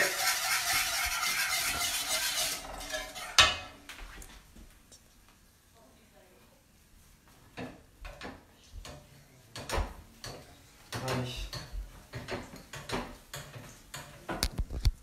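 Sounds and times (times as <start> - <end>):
egg frying in oil: 0.0 - 3.6.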